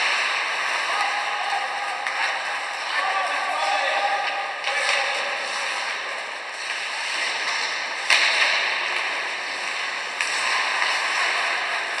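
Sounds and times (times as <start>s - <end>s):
skates hissing on ice: 5.3s - 12.0s.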